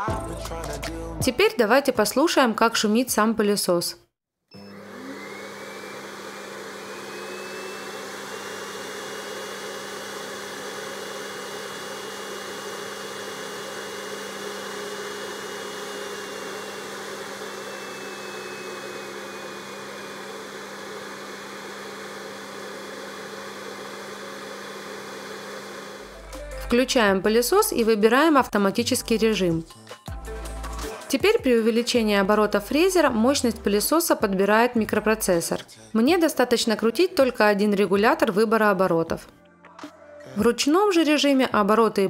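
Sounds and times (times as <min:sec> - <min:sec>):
vacuum fan whine: 0:04.5 - 0:26.2.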